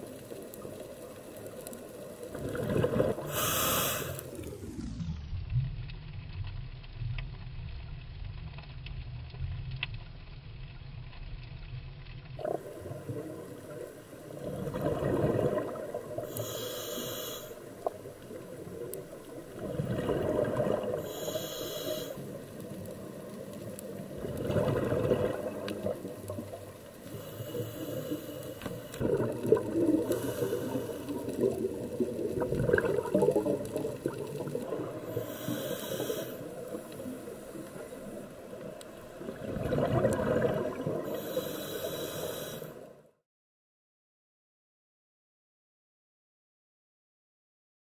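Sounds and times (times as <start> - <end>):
exhaled air bubbling: 2.0 - 5.0, 12.4 - 42.7
scuba regulator breathing: 3.0 - 4.6, 16.2 - 18.0, 20.8 - 22.6, 27.0 - 32.3, 34.7 - 38.4, 40.8 - 43.0
low underwater rumble: 22.3 - 35.8.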